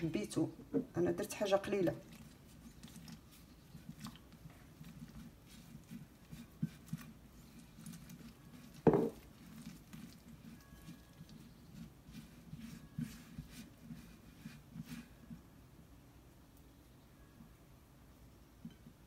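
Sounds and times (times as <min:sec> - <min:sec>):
hand patting damp dough: 0:01.8 - 0:15.5
glass knocking on counter: 0:08.8 - 0:09.2.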